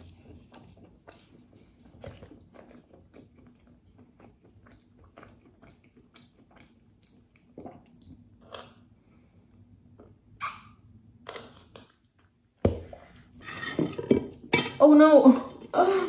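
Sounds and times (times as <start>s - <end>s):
person chewing: 0.1s - 8.9s.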